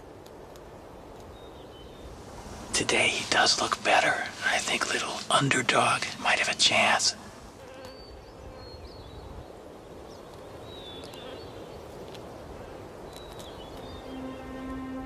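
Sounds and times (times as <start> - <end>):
sustained music tone: 13.8 - 15.0.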